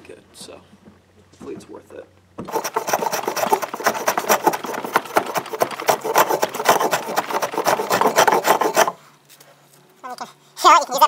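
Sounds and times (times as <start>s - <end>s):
hand plane shaving wood: 2.4s - 9.0s.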